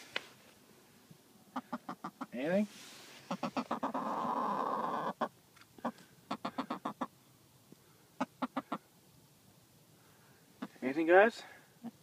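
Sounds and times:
hens clucking: 1.4 - 2.6, 3.2 - 7.3, 8.2 - 9.0, 10.6 - 11.1.

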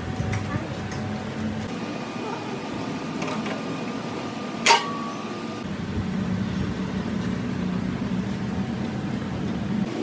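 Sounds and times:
low machine hum: 0.0 - 10.0
metal piece clanking on steel: 4.6 - 5.2.

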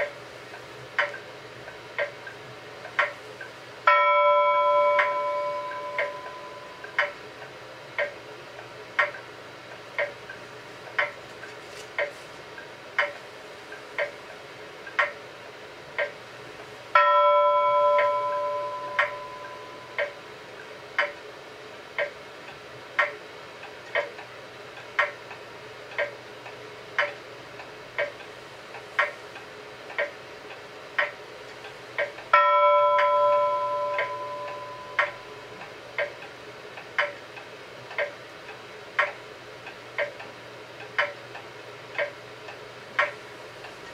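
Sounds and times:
clock ticking: 0.0 - 21.3, 21.9 - 43.9
bell-like chime: 3.9 - 6.8, 17.0 - 20.0, 32.4 - 35.4.

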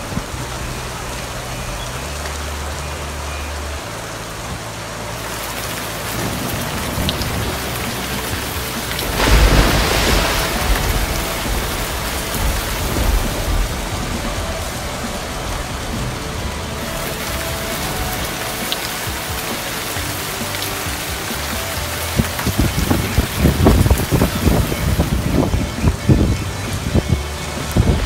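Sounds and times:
heavy rain on pavement and cars: 0.0 - 28.0
low rumble: 6.0 - 28.0.

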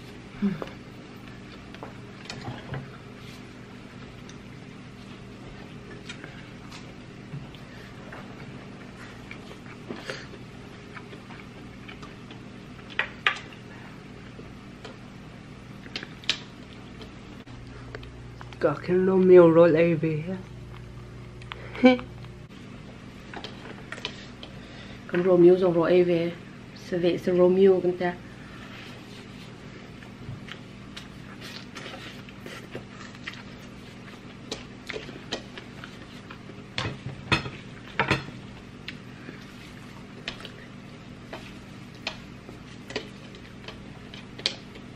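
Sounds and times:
low room hum: 0.0 - 44.9
chewing: 3.9 - 15.0, 29.9 - 36.6.

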